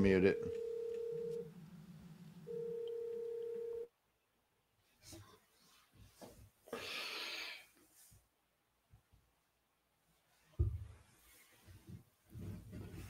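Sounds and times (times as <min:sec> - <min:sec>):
phone ringing: 0:00.0 - 0:01.6, 0:02.4 - 0:03.9
faint rustling: 0:10.0 - 0:13.0.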